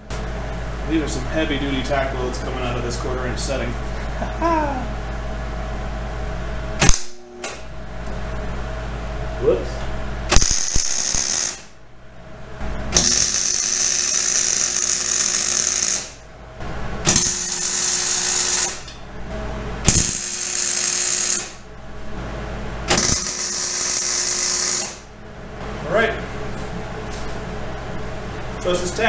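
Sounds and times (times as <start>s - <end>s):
sharp pop of welding arc: 6.8s - 7.6s, 10.3s - 11.7s, 17.0s - 18.8s, 19.8s - 21.6s, 22.9s - 25.0s
welding arc crackling: 10.3s - 11.8s, 12.9s - 16.2s, 17.0s - 18.9s, 19.8s - 21.6s, 22.9s - 25.1s.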